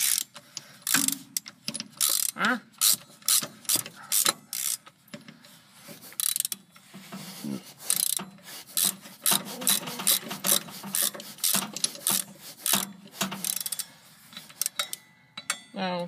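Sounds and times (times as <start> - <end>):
socket ratchet clicking: 0.0 - 4.9, 6.2 - 6.7, 7.9 - 8.2, 8.8 - 15.5.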